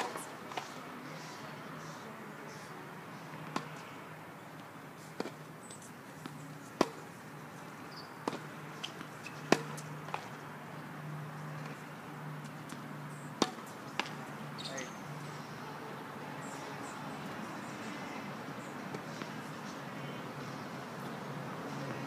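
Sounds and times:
tennis balls struck by rackets: 0.0 - 0.8, 3.2 - 4.0, 5.0 - 10.4, 11.4 - 14.8.

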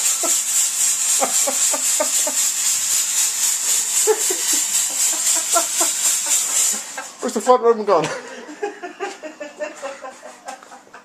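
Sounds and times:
smoke machine hissing: 0.0 - 10.7.

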